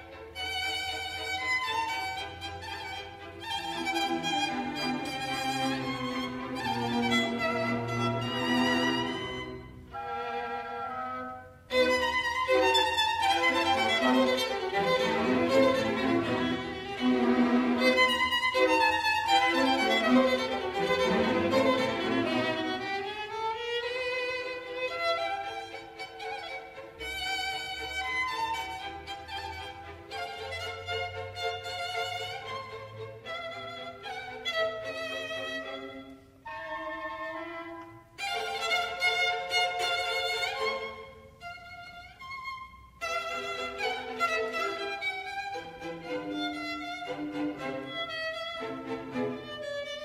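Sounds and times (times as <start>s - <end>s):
violin playing bowed notes: 0.0s - 50.0s
instrumental melody of held notes: 2.3s - 14.7s.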